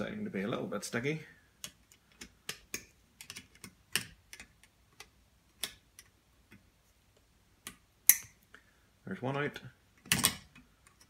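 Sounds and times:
metallic tool clicks and taps: 0:07.6 - 0:08.4.

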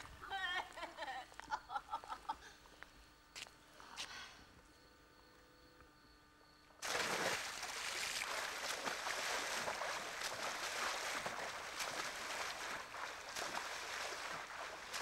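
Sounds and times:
loud splash: 0:06.8 - 0:15.0
swimming splashing water: 0:06.8 - 0:15.0.

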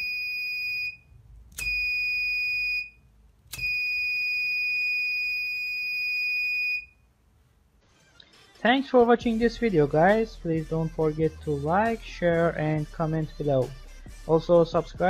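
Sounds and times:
high-pitched alarm buzzer beeps: 0:01.6 - 0:03.0, 0:03.6 - 0:07.0.

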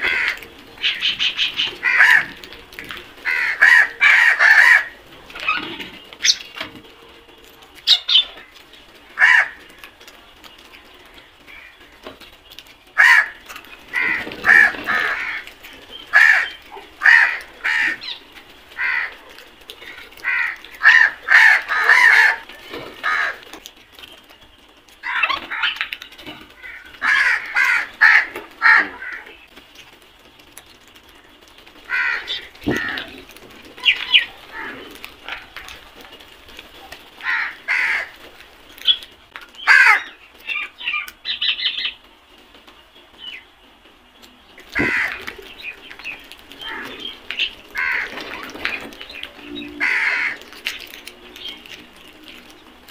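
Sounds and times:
crows cawing: 0:00.0 - 0:02.5, 0:03.2 - 0:05.5, 0:09.2 - 0:09.7, 0:13.0 - 0:23.5, 0:25.0 - 0:25.8, 0:26.6 - 0:29.4, 0:31.8 - 0:33.1, 0:33.8 - 0:35.7, 0:37.2 - 0:38.2, 0:39.6 - 0:41.1, 0:44.6 - 0:52.4.

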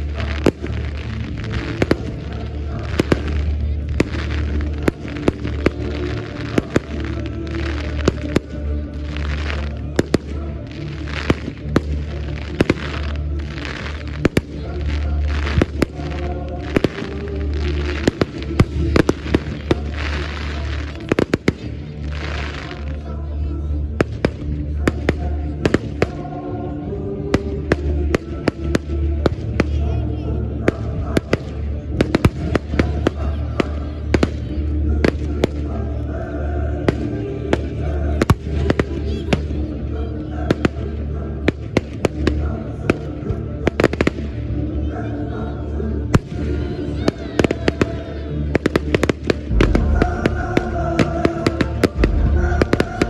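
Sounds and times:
fireworks bangs: 0:00.0 - 0:22.9, 0:48.6 - 0:53.0
fireworks crackling hiss: 0:00.0 - 0:23.1, 0:46.1 - 0:53.0
music playing: 0:00.0 - 0:53.0.

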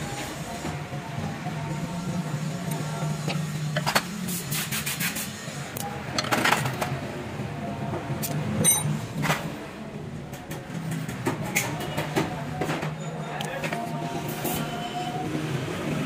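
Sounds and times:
wrench clinking on metal parts: 0:08.2 - 0:08.9.

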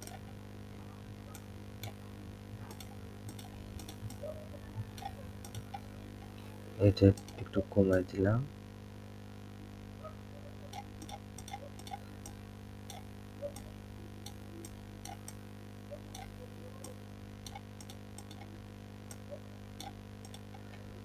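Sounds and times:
computer mouse clicking: 0:00.0 - 0:00.2, 0:02.6 - 0:05.9, 0:10.7 - 0:20.7
low electrical hum: 0:00.0 - 0:21.0.

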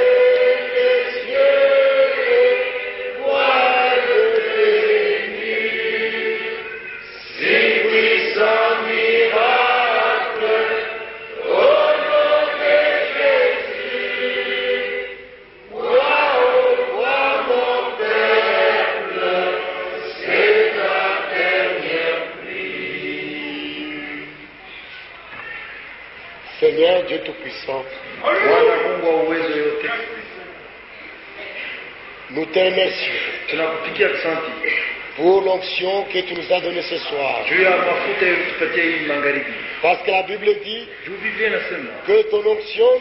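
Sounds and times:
congregation singing a hymn: 0:00.0 - 0:24.6, 0:35.4 - 0:43.0.

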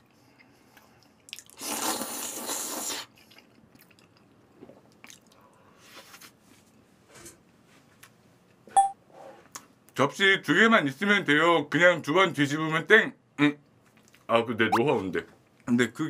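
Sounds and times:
loud slurp: 0:01.4 - 0:03.1
quiet chewing: 0:02.4 - 0:05.7, 0:13.7 - 0:14.3.

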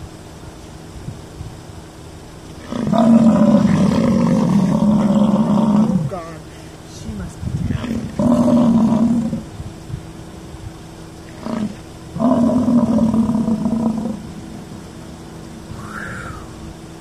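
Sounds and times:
bison bellowing: 0:02.5 - 0:06.3, 0:07.7 - 0:09.6, 0:11.3 - 0:15.0
bison grunt: 0:07.7 - 0:09.5.

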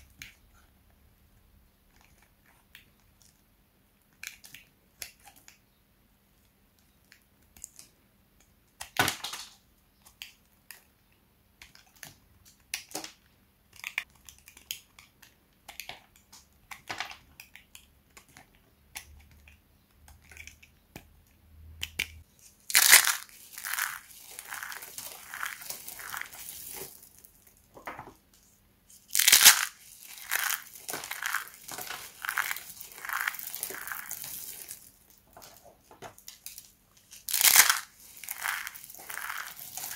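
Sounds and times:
soap crunch: 0:21.9 - 0:27.5, 0:29.0 - 0:35.1, 0:37.2 - 0:39.9
soap pieces crushed in hands: 0:22.6 - 0:27.6, 0:29.1 - 0:35.2, 0:37.1 - 0:39.9.

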